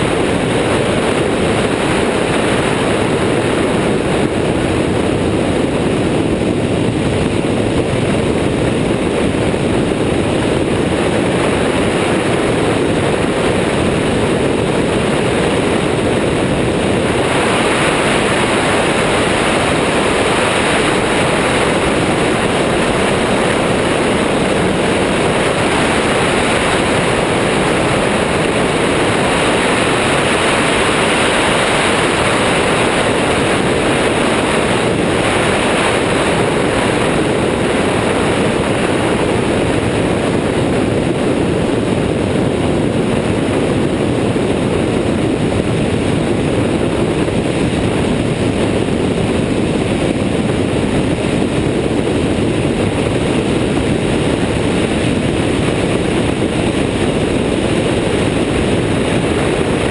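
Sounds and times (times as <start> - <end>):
aircraft engine and propeller drone: 0.0 - 59.9
wind rushing over microphone: 0.0 - 59.9.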